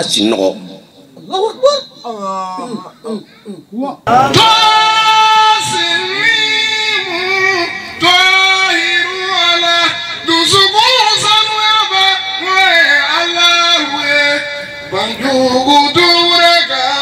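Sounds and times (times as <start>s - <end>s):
man singing into a microphone: 4.1s - 17.0s.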